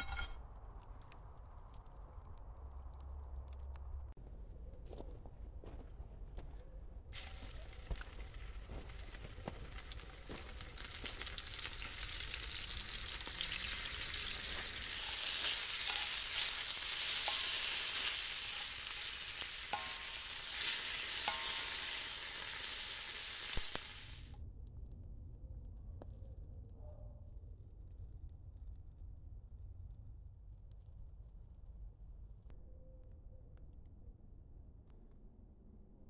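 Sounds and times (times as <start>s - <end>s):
bacon sizzling in a frying pan: 7.2s - 24.3s.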